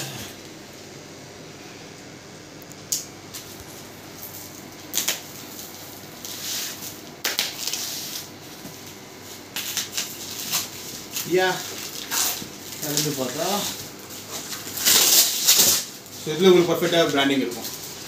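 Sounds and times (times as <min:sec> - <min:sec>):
packing tape slit with blade: 0:14.5 - 0:15.9.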